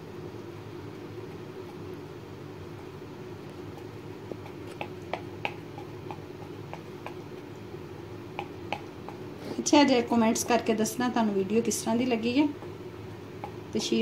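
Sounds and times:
low background hum: 0:00.0 - 0:14.0
fork tapping dough and board: 0:03.7 - 0:07.5, 0:08.3 - 0:09.2, 0:13.4 - 0:13.9.

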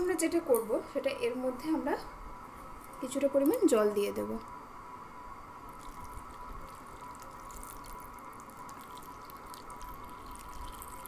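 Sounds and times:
water trickling into bowl: 0:05.7 - 0:11.0.

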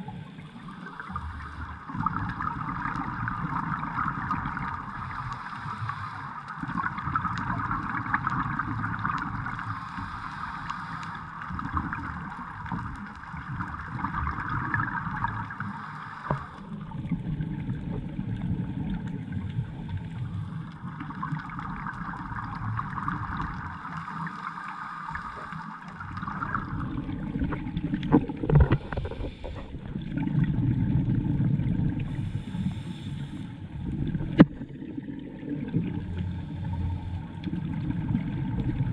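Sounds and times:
scuba regulators bubbling: 0:00.0 - 0:38.9
sharp clicks underwater: 0:04.2 - 0:16.8, 0:25.2 - 0:30.2, 0:34.0 - 0:34.8.

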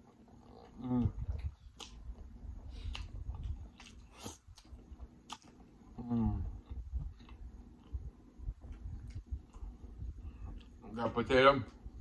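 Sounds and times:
man chewing and lip-smacking: 0:00.0 - 0:10.8
wet mouth clicks: 0:00.6 - 0:02.0, 0:02.8 - 0:05.6
man humming: 0:00.7 - 0:01.4, 0:06.0 - 0:06.6.

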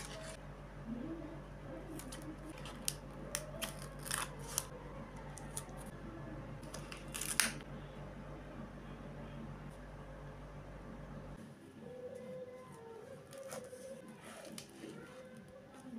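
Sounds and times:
paper and sticker sheets crinkling: 0:00.0 - 0:00.4, 0:01.9 - 0:05.9.

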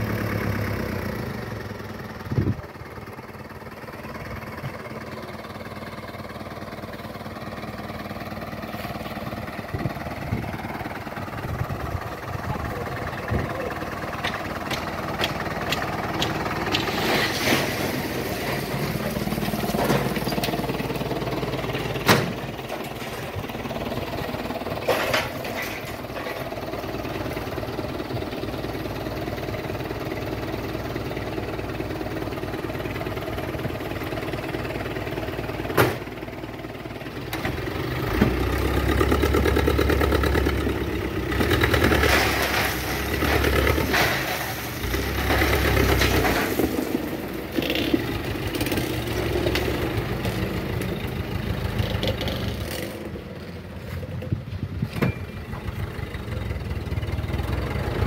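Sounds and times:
diesel engine running: 0:00.0 - 0:58.0
gravel sliding out: 0:16.0 - 0:23.5, 0:41.3 - 0:51.0.

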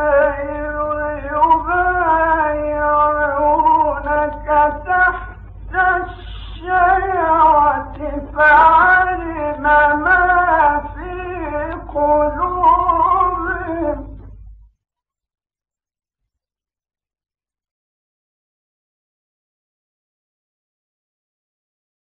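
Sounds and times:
man reciting in melodic style: 0:00.0 - 0:14.4
low recording hum: 0:00.0 - 0:14.8.

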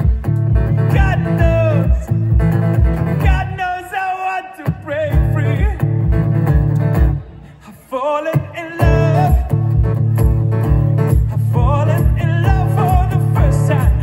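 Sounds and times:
pulsing bass beat: 0:00.0 - 0:03.6, 0:05.0 - 0:07.2, 0:08.8 - 0:14.0
song with singing and guitar: 0:00.0 - 0:14.0.

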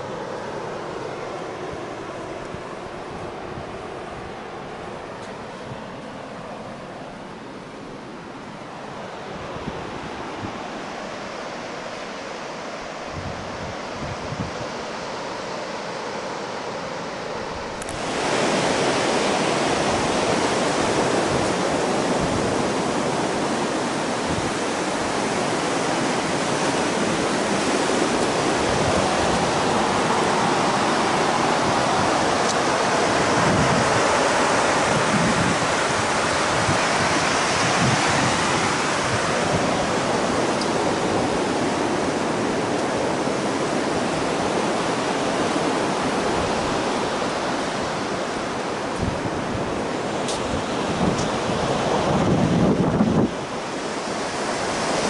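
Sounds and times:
ocean surf rushing: 0:00.0 - 0:55.0.

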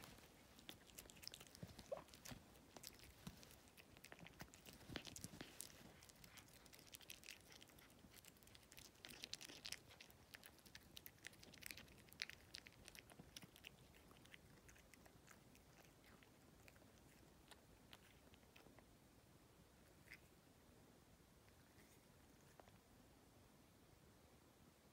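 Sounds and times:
cat chewing: 0:00.0 - 0:19.0.

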